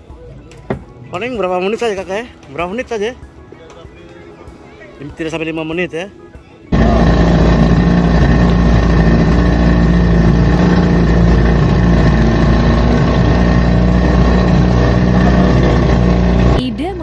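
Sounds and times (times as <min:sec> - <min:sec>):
outboard motor running: 0:06.7 - 0:17.0.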